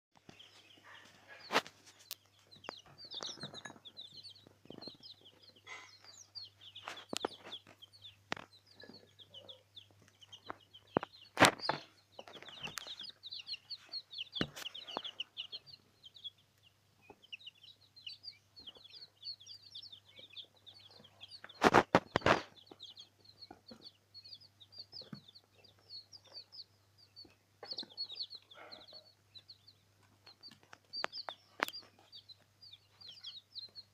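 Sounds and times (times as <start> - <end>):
chicks peeping: 0.2 - 33.9.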